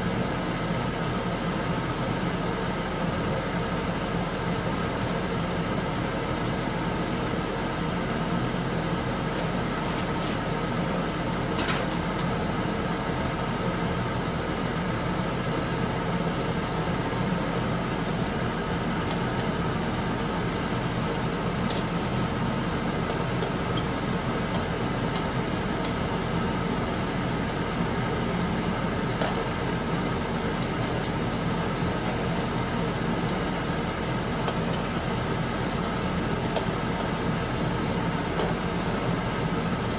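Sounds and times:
fan-like drone: 0.0 - 39.9.

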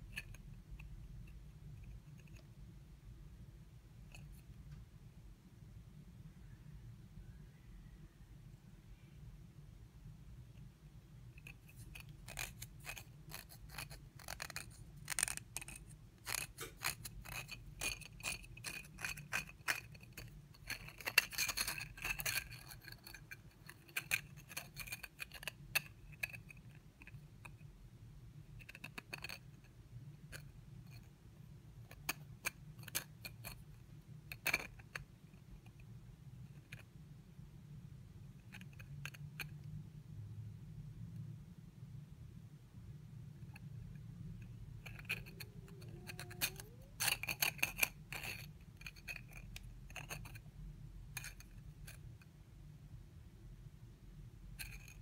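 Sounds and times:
plastic rings clicking and scraping: 11.3 - 27.6, 31.8 - 36.9, 43.4 - 50.5, 51.1 - 52.1
faint squeak: 44.8 - 48.5.

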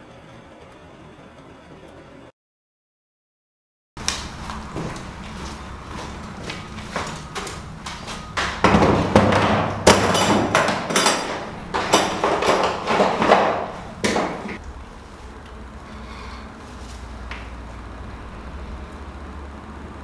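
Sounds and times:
tools rattling in plastic case: 8.6 - 14.6.

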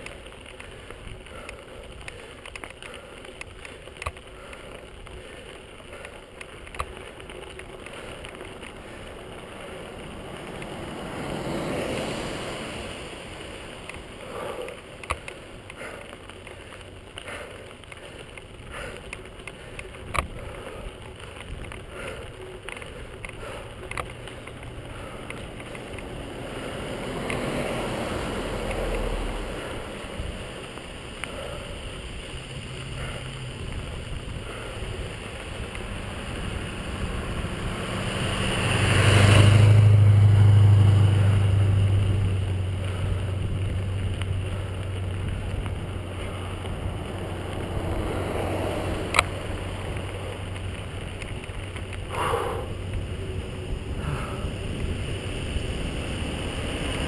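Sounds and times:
small clicks and knocks: 0.0 - 9.4, 14.6 - 21.9, 22.5 - 26.1, 48.9 - 52.0
bicycle rolling over gravel: 0.0 - 57.0
motor vehicles passing: 0.0 - 57.0.

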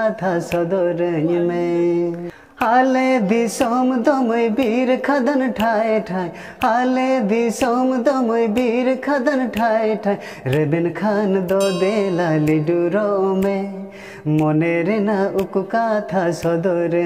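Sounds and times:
man singing slow song: 0.0 - 17.0
light musical accompaniment: 11.5 - 14.5.

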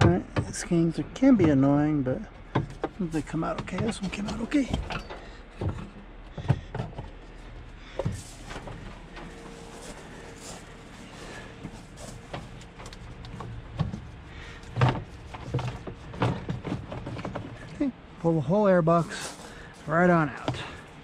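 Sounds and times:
plastic parts knocking and rattling: 11.6 - 17.8.

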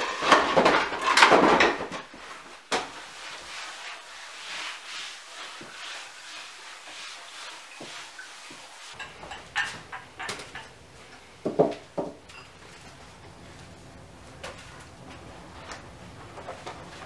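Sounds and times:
cloth rubbing on tablecloth: 2.2 - 9.0.

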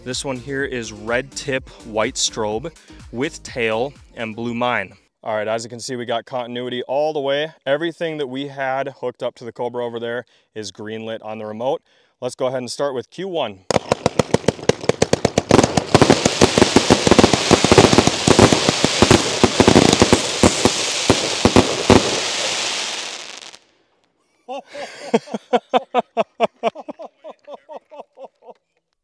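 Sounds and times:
evenly spaced pops: 13.7 - 23.4
firework launches and bursts: 13.7 - 23.7
steady hiss: 16.0 - 23.6.

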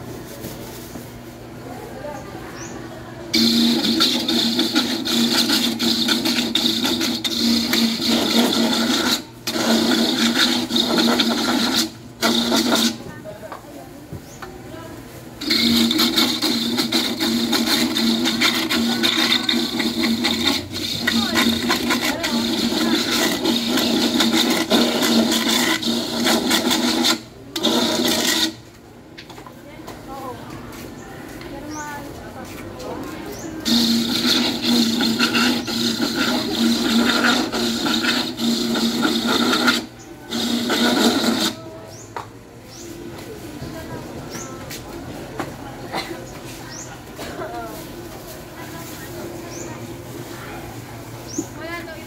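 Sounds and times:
grater motor humming and whirring: 3.4 - 13.1, 15.4 - 28.6, 33.6 - 41.7.

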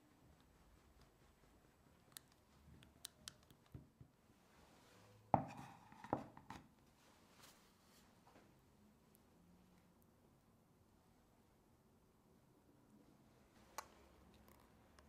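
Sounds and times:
wooden board knocking on countertop: 5.4 - 6.6.

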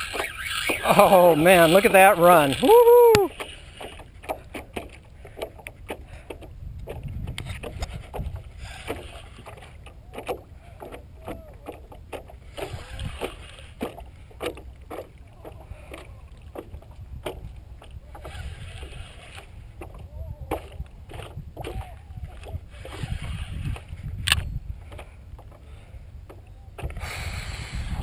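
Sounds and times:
fishing reel clicking and squeaking: 0.0 - 4.1
water against paddleboard: 0.0 - 28.0
wind rumbling on microphone: 0.0 - 28.0.

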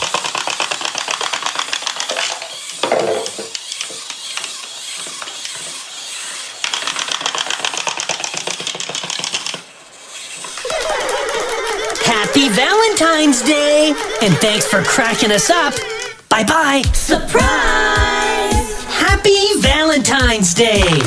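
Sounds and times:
wind-up toys clicking: 0.0 - 16.2.

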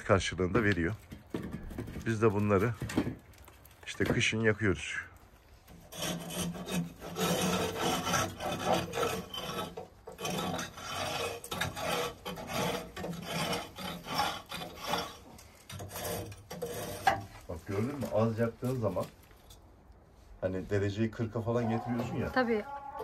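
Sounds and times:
scraping inside a boiler: 5.6 - 19.7.

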